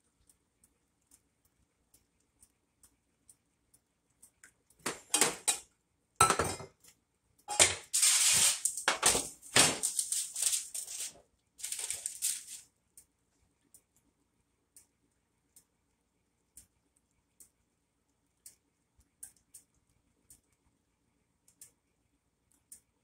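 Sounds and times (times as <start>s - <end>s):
kitchenware clanking and scraping: 4.8s - 5.6s, 6.2s - 6.8s, 7.5s - 12.6s.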